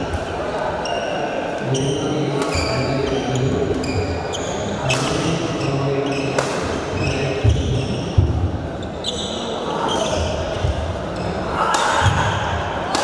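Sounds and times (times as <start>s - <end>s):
shoes squeaking on wooden court: 0.8s - 8.2s, 8.8s - 11.4s
racket hitting shuttlecock: 6.3s - 6.8s, 11.6s - 13.0s.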